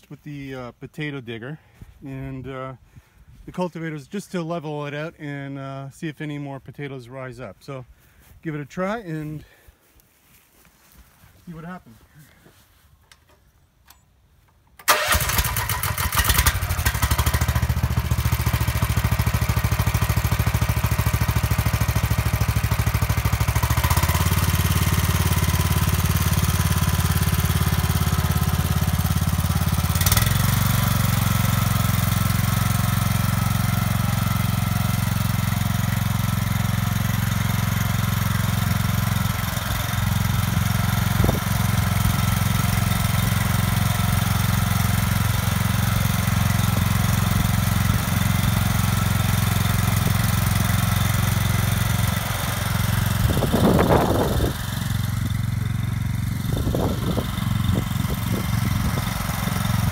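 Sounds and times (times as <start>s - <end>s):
small petrol engine running: 14.9s - 59.9s.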